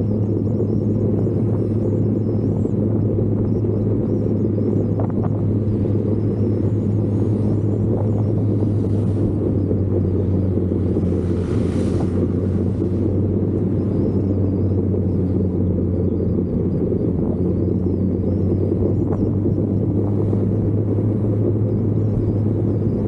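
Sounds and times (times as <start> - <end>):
low engine drone: 0.0 - 23.0.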